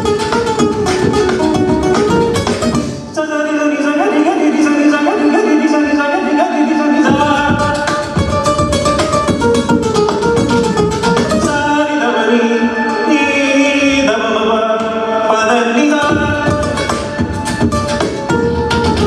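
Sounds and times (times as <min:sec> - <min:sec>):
beatboxed processed beat: 0:00.0 - 0:11.8, 0:15.9 - 0:19.0
acoustic guitar: 0:00.0 - 0:19.0
person singing a melody: 0:03.1 - 0:19.0.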